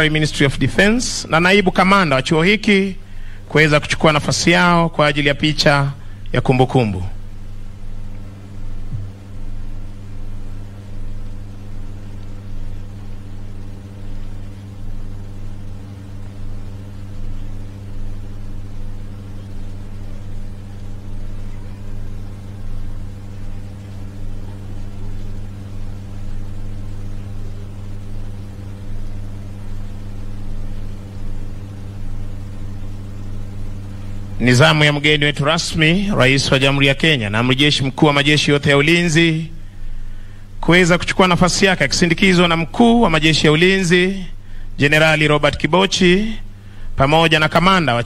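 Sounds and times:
faint hiss: 0.0s - 48.0s
steady low hum: 0.0s - 48.0s.

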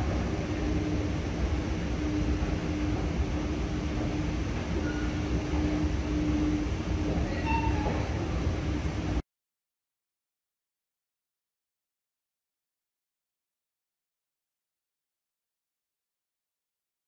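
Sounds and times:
escalator steps rumbling: 0.0s - 9.2s.

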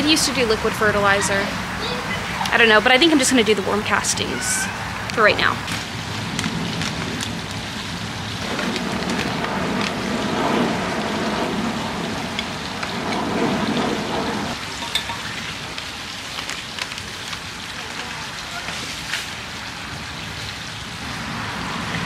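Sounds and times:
castings pattering on plants: 5.1s - 10.2s, 14.8s - 19.4s.

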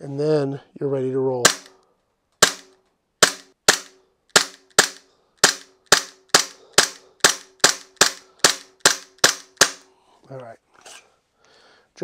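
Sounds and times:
bb pistol shots: 1.4s - 1.8s, 2.4s - 9.9s.

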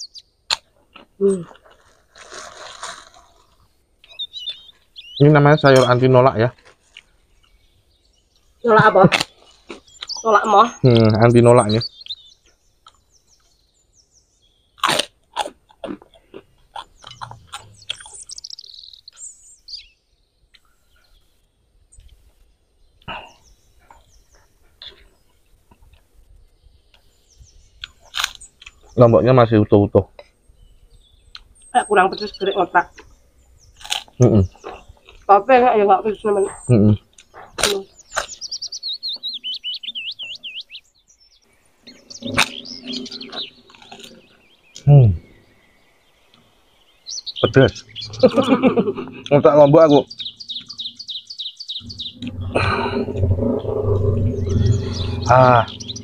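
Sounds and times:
birds chirping: 0.0s - 56.0s
crackers crunching: 0.5s - 4.9s, 6.5s - 7.6s, 9.1s - 10.2s, 14.8s - 18.2s, 27.8s - 28.9s, 33.7s - 35.3s, 42.2s - 44.8s.

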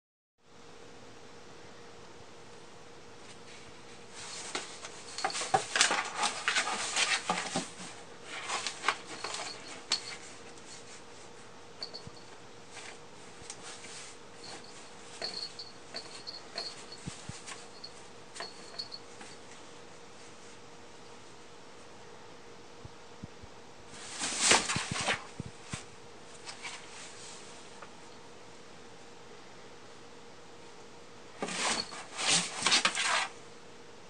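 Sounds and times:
cat scuffing in cardboard box: 4.1s - 11.1s, 24.0s - 27.5s, 31.4s - 33.3s.

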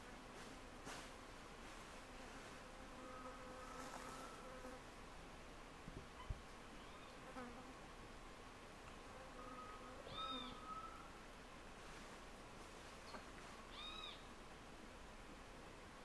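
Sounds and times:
flying insect buzzing: 2.4s - 4.8s.

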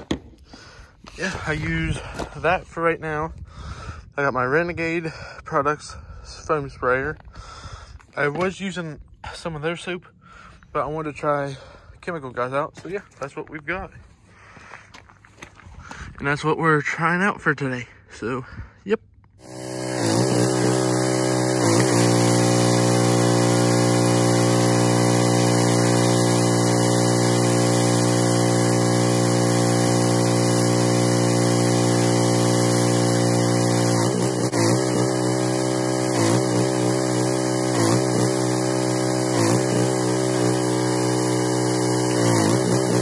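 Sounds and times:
pressure washer engine running: 19.4s - 43.0s.

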